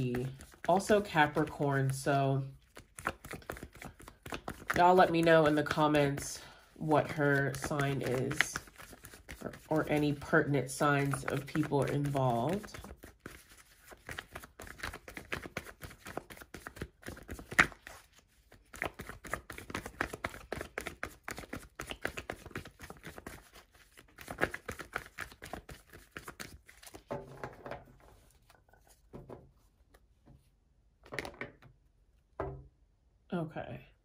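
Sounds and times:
cards being shuffled: 0:00.0 - 0:02.0, 0:02.6 - 0:06.3, 0:07.0 - 0:27.1.

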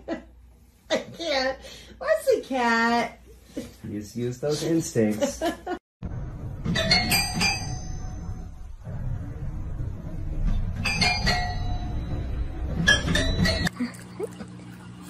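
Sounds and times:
low rumble: 0:06.0 - 0:06.7, 0:07.8 - 0:12.9.

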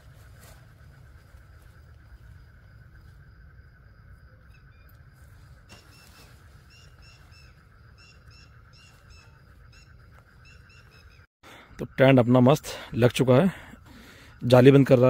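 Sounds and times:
steady high whine: 0:00.0 - 0:11.2
quick high bird chirps: 0:05.7 - 0:11.3.

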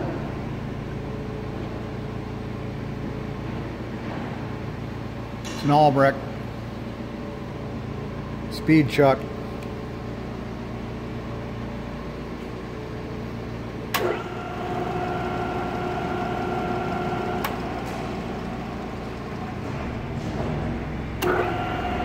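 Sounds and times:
drill press motor whine: 0:13.8 - 0:22.0.

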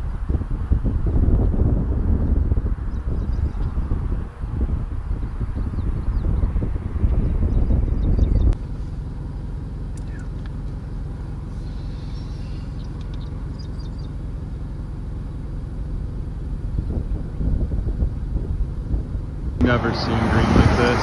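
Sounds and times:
wind buffeting microphone: 0:00.0 - 0:08.6, 0:16.4 - 0:21.0
vehicle engine idling: 0:00.0 - 0:21.0.

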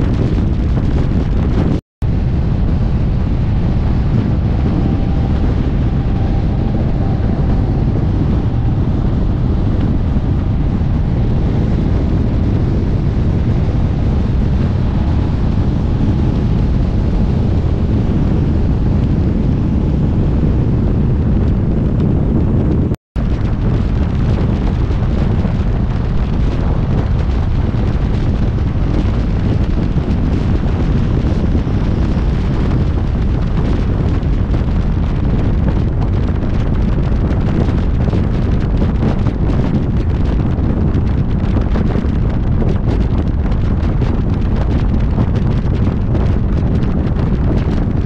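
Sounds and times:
wind buffeting microphone: 0:00.0 - 0:48.0
road traffic: 0:02.1 - 0:37.1.

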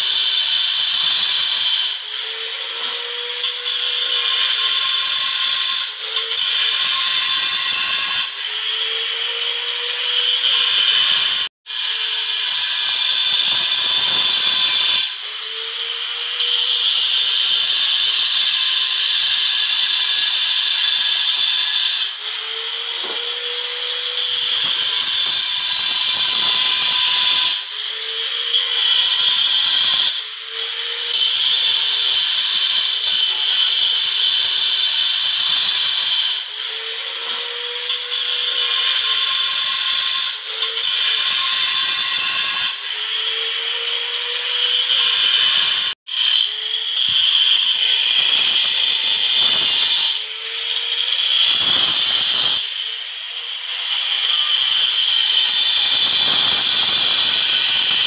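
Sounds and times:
angle grinder cutting marble: 0:00.0 - 0:58.0.

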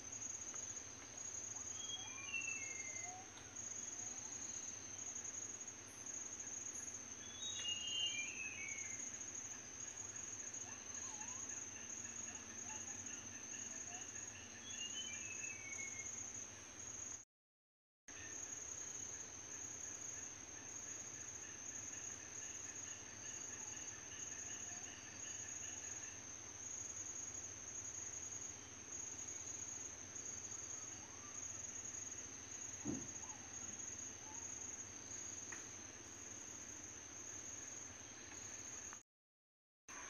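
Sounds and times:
chorus of night insects: 0:00.0 - 0:17.2, 0:18.1 - 0:39.0
short thump: 0:32.8 - 0:33.2.

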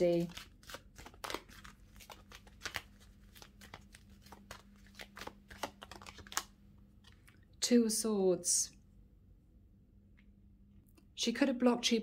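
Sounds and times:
cards shuffling clicks: 0:00.0 - 0:07.2
faint steady hum: 0:00.0 - 0:12.0.

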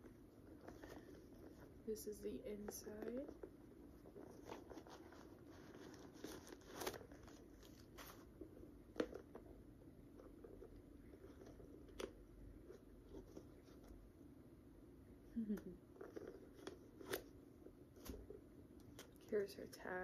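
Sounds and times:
leather bag handling: 0:04.3 - 0:08.3.

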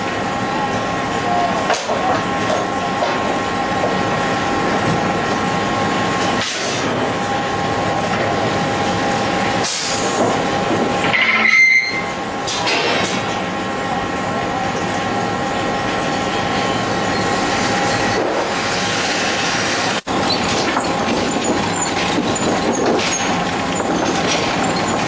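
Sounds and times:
machinery din with whining tones: 0:00.0 - 0:25.0
high squeal: 0:11.0 - 0:12.2.

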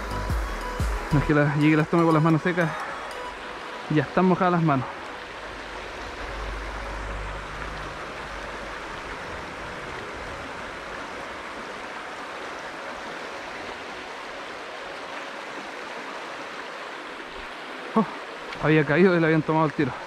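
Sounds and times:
river water flowing: 0:00.0 - 0:20.0
low rumble: 0:05.5 - 0:11.5.

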